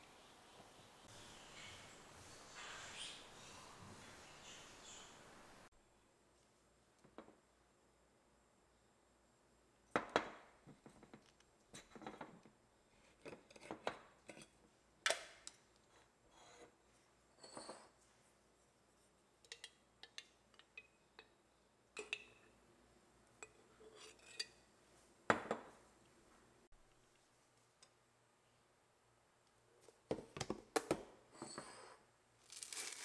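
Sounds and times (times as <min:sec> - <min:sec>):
metal lid clinking on glass jar: 0:22.0 - 0:22.5.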